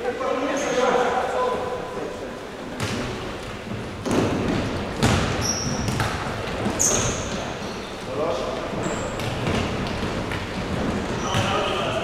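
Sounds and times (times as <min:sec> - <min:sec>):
sneakers squeaking: 0:04.0 - 0:12.0.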